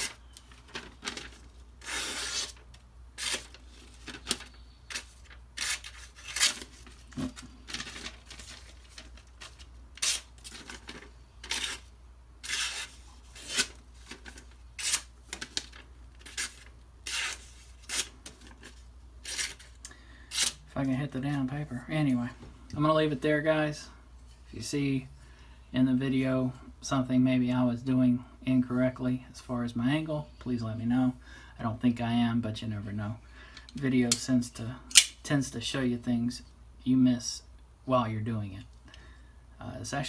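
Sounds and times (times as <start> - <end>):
knife slicing through paper: 1.8 - 2.6, 12.4 - 13.8.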